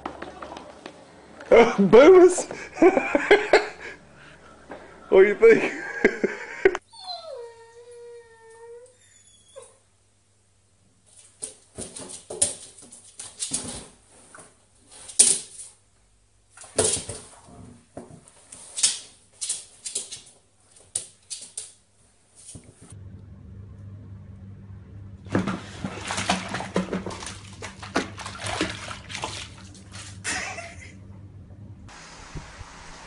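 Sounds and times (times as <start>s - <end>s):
dog whining: 6.8s - 9.9s.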